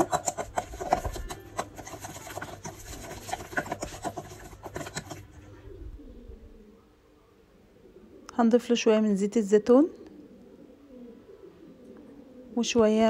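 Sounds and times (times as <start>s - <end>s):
metal spoon scraping steel bowl: 0.0s - 5.4s.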